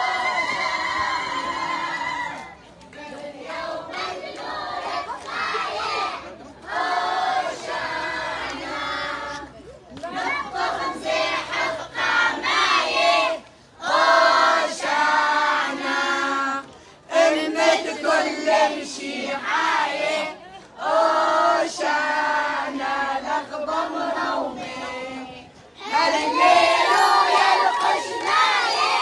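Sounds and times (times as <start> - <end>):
children and women singing a hymn: 0.0 - 29.0.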